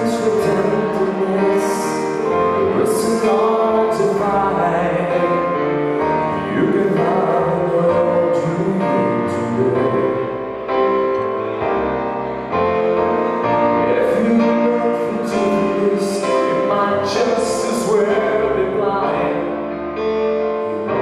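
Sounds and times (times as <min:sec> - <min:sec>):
keyboard chords: 0:00.0 - 0:21.0.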